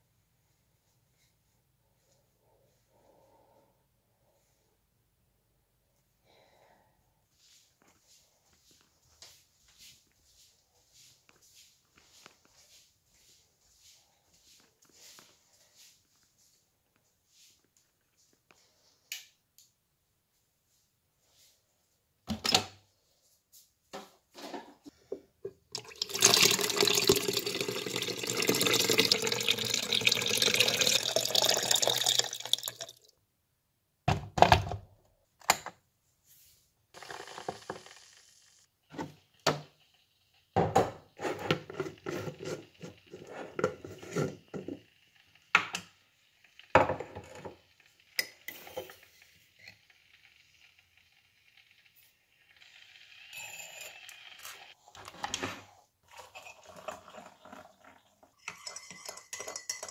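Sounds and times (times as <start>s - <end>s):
water running from a tap: 25.8s - 33.1s.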